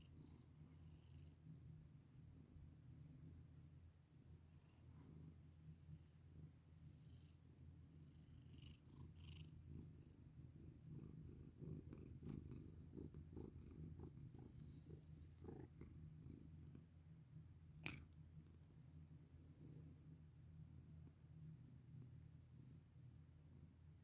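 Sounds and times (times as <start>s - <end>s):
cat purring: 6.6s - 21.3s.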